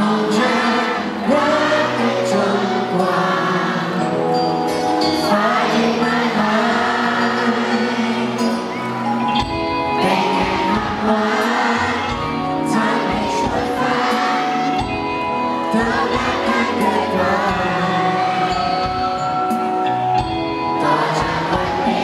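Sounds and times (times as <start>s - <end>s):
man singing into microphone: 0.0s - 4.3s, 5.1s - 8.7s, 10.0s - 14.8s, 15.6s - 19.1s, 20.7s - 22.0s
musical accompaniment: 0.0s - 22.0s.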